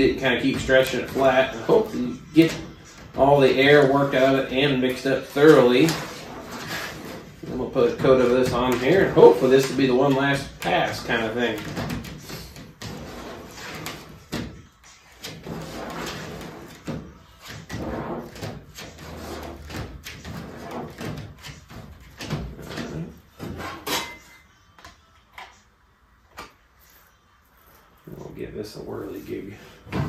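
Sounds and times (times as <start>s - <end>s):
spreader scraping cardboard board: 0.0s - 23.8s.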